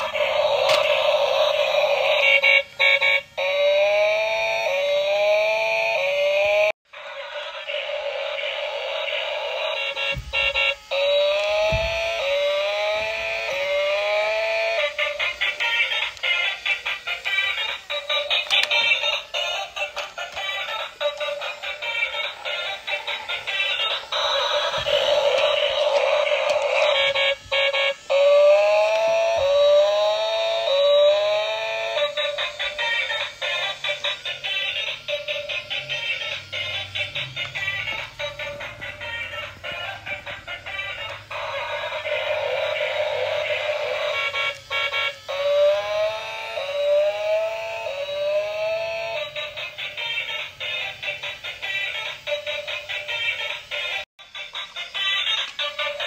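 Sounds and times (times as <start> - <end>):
rising siren-like sweeps: 0.0 - 49.9
harsh electronic noise: 0.0 - 56.0
jingly toy music: 14.9 - 28.0, 32.0 - 45.2, 49.2 - 56.0.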